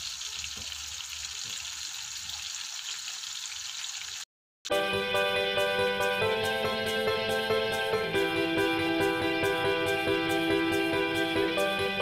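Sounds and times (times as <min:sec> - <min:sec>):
food sizzling in hot oil: 0:00.0 - 0:04.3
guitar music: 0:04.7 - 0:12.0.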